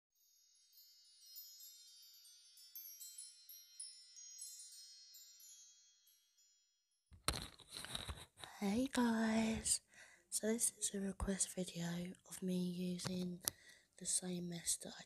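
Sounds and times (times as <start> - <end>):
wind chimes twinkling: 0.2 - 6.8
rustling noise: 7.2 - 8.6.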